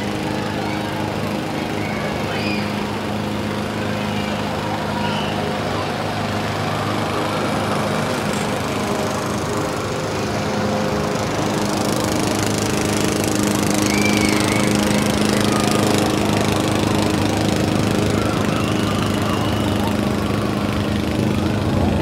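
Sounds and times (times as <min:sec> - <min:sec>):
motor drone with low hum: 0:00.0 - 0:22.0.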